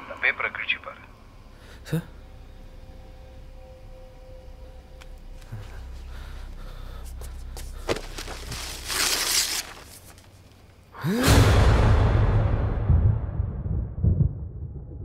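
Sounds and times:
deep sustained boom: 11.4s - 15.0s.

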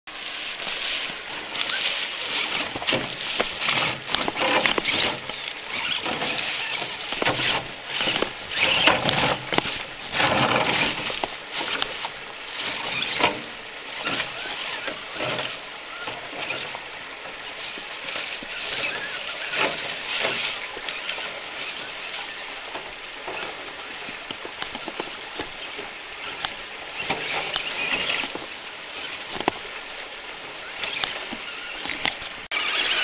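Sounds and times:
tyres scraping on stone: 0.1s - 21.8s
leaves crunching and rustling: 0.1s - 33.0s.

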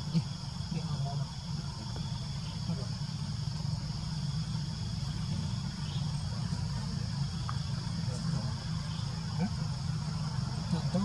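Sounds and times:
insect chorus buzzing: 0.0s - 11.0s.

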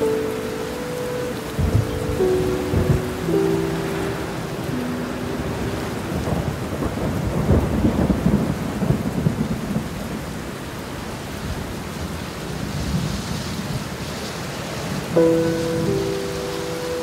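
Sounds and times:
heavy rain: 0.0s - 17.0s
thunder rumble: 1.5s - 10.6s.

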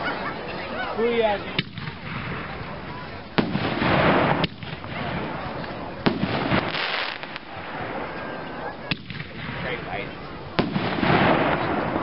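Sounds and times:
firework hiss: 1.0s - 12.0s
firework shells bursting: 3.3s - 12.0s.

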